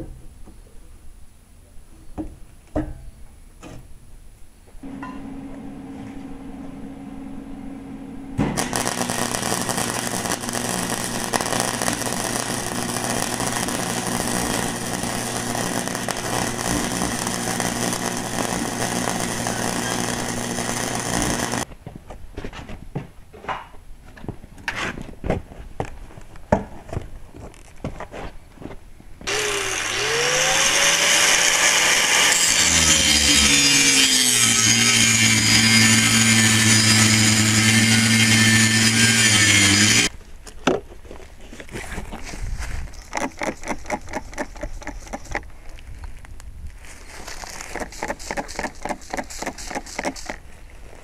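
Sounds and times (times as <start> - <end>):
steady hum: 4.8 - 21.7
welder arc crackling: 8.5 - 21.7, 29.2 - 40.1.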